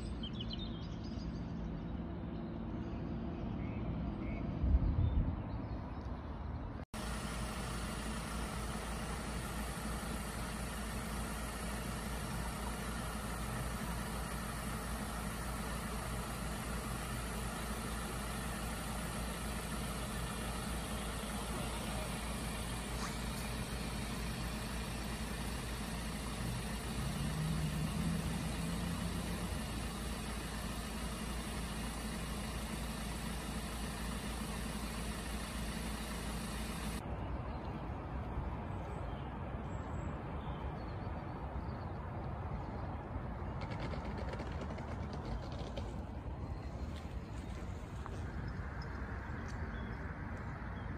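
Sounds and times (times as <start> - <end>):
van engine idling: 6.9 - 37.0, 42.7 - 50.9.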